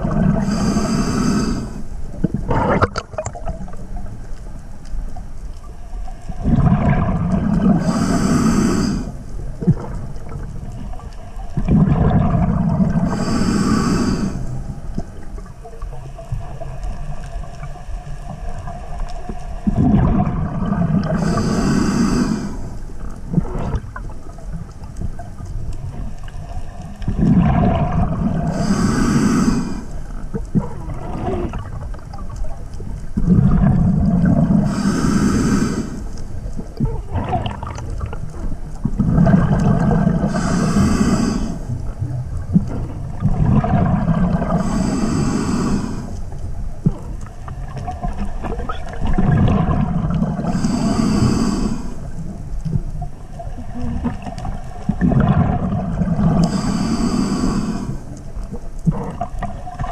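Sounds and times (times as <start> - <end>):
exhaled bubbles gurgling underwater: 0.0 - 59.9
regulator hiss: 0.4 - 2.0, 7.8 - 9.3, 13.0 - 14.7, 21.2 - 22.8, 28.5 - 30.1, 34.6 - 36.2, 40.3 - 41.7, 44.5 - 46.2, 50.4 - 52.1, 56.4 - 58.2.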